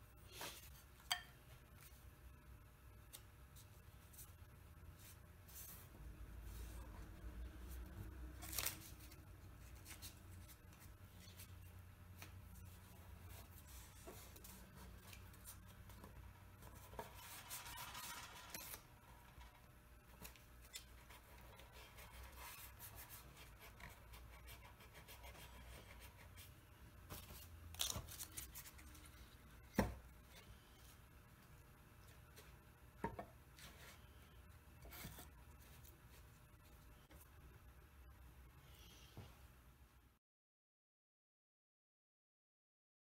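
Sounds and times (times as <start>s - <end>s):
tape rustling and rubbing: 7.7s - 29.4s.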